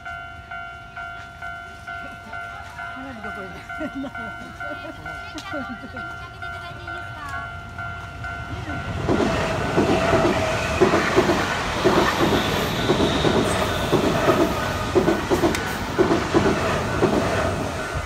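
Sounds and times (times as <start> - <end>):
level crossing bell ringing: 0.0 - 9.1
train wheels clicking over rail joints: 2.7 - 18.0.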